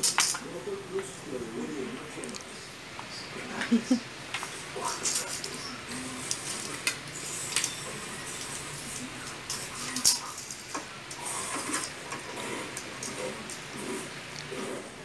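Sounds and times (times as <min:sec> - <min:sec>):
toy strip batted along floor: 0:04.8 - 0:14.2.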